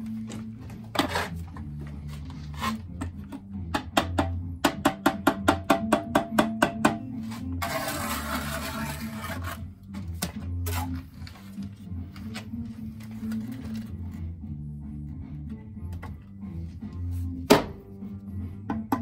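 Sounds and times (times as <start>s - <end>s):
background music: 0.0s - 19.0s
steel trowel scraping mortar: 1.0s - 1.6s, 7.2s - 9.7s
sharp taps on concrete block: 3.0s - 7.0s.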